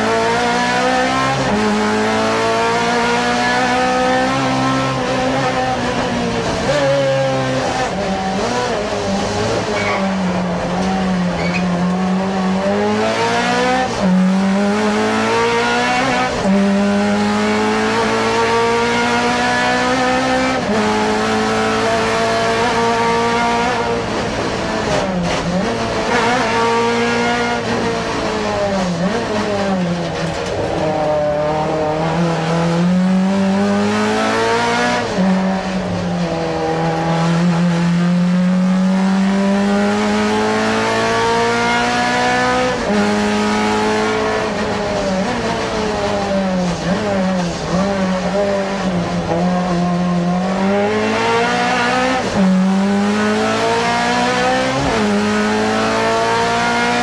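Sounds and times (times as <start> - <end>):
rally car engine revving: 0.0 - 57.0.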